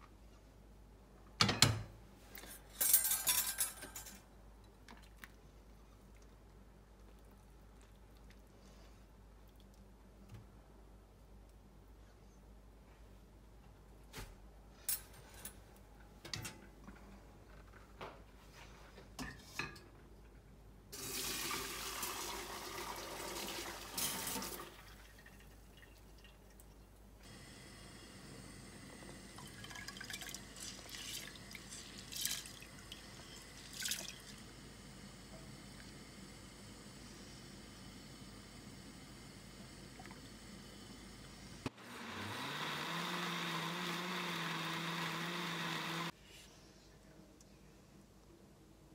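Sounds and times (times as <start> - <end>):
faint hiss from pot: 27.2 - 41.7
liquid pouring and splashing: 29.4 - 34.4.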